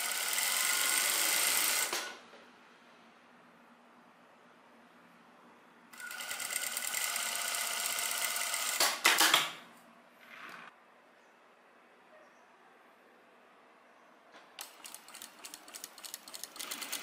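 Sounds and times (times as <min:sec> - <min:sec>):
sewing machine stitching: 0:00.0 - 0:02.1, 0:06.0 - 0:09.3, 0:14.6 - 0:17.0.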